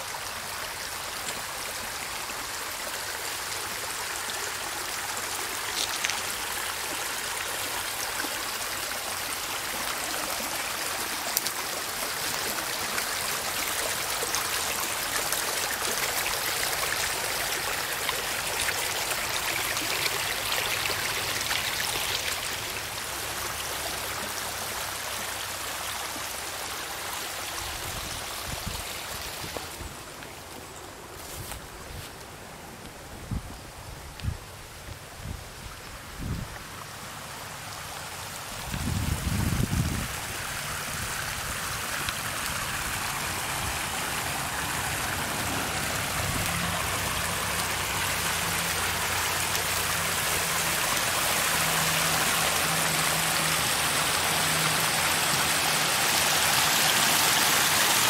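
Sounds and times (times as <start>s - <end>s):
creek water running over rocks: 0.0s - 58.0s
water pouring from pipe: 5.0s - 23.9s, 40.6s - 58.0s.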